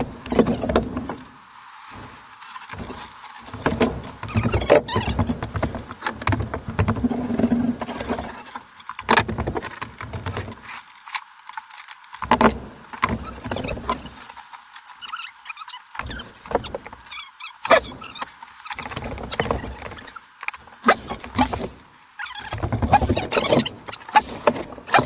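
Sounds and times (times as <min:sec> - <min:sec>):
drywall sheets and tools knocking: 0:22.4 - 0:25.0.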